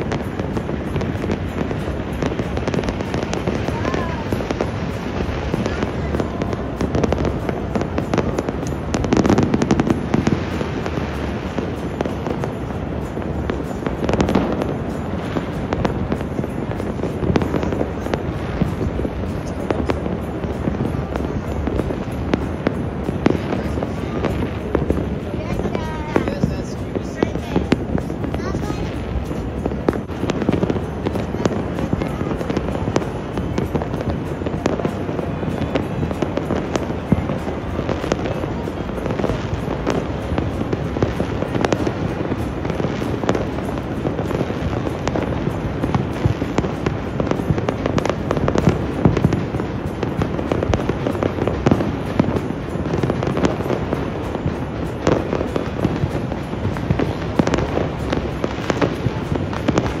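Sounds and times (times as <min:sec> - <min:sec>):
fireworks and firecrackers crackling: 0:00.0 - 1:00.0.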